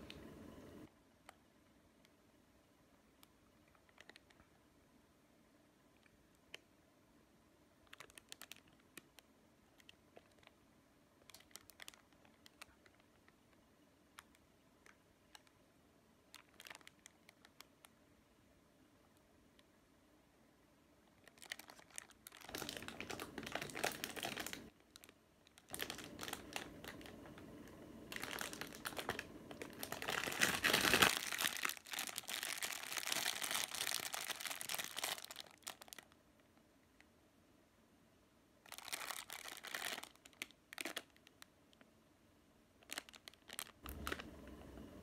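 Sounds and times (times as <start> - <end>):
plastic wrapper crinkling: 3.2 - 4.5, 7.8 - 10.6, 11.2 - 15.6, 16.3 - 17.9, 21.1 - 36.2, 38.6 - 41.9, 42.8 - 44.3.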